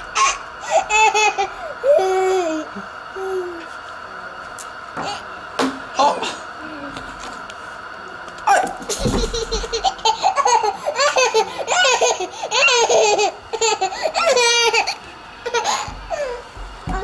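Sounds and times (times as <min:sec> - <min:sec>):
toddler giggling: 0:08.5 - 0:16.4.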